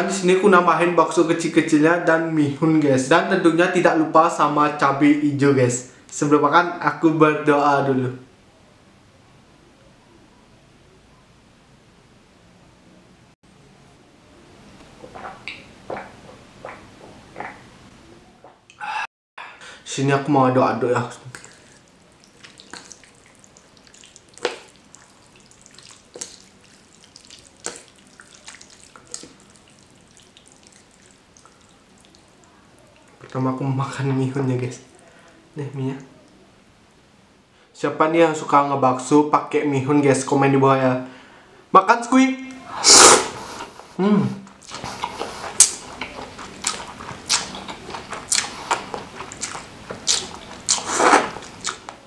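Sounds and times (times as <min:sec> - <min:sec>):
mouth smacks: 0:15.0 - 0:17.7, 0:21.3 - 0:32.2, 0:42.6 - 0:52.0
wet stirring of noodles in sauce: 0:21.3 - 0:33.3, 0:44.6 - 0:51.9
wet noodle slurps: 0:42.7 - 0:43.8, 0:44.6 - 0:51.9.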